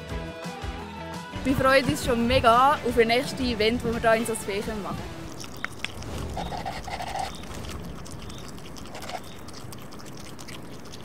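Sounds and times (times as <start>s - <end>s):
animal chewing crunchily: 4.7s - 11.0s.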